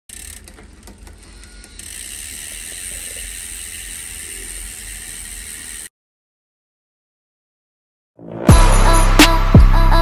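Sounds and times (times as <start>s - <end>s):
bicycle freehub ratchet clicking: 0.1s - 5.9s.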